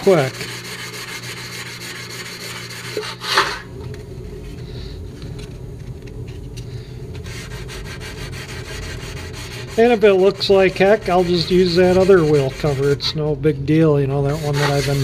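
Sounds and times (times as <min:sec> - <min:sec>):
sandpaper sanding metal: 0:00.0 - 0:03.5, 0:07.2 - 0:13.2, 0:14.2 - 0:15.0
sharp scrape: 0:00.0 - 0:03.7, 0:14.3 - 0:15.0.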